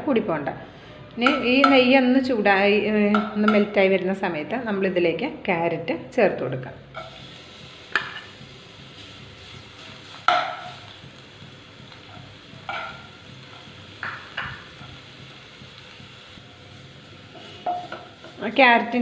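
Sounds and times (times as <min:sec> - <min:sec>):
carrot sizzling in pan: 0:06.0 - 0:19.0.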